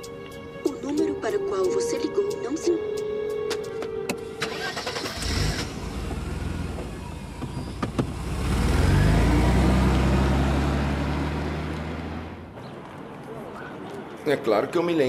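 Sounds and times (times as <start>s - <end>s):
car engine starting and revving: 4.3s - 12.5s.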